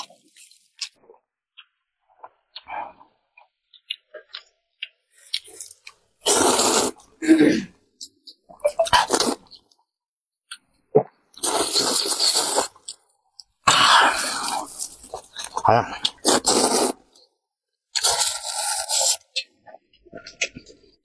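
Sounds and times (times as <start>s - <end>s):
noodles being slurped: 5.2s - 7.1s, 8.7s - 9.6s, 11.4s - 13.0s, 13.7s - 17.2s, 17.9s - 19.6s
wet mouth clicks: 14.5s - 17.0s, 20.2s - 20.7s.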